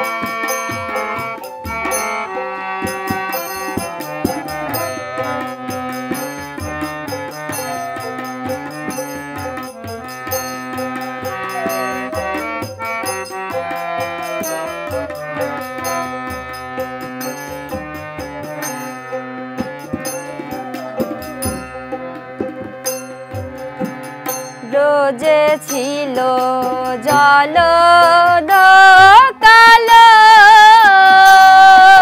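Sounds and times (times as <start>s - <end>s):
bamboo flute melody: 0.0s - 5.9s, 7.5s - 8.6s, 9.4s - 17.0s, 19.1s - 23.5s
harmonium chords: 0.0s - 32.0s
tabla beat: 0.0s - 32.0s.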